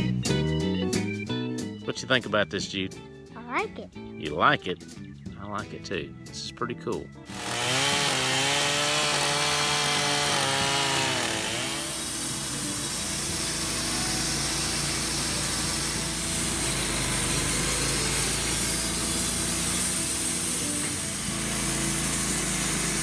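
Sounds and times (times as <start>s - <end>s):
band blade sawing wood: 7.3s - 23.0s
chainsaw running: 7.3s - 23.0s
sawmill engine running: 7.3s - 23.0s.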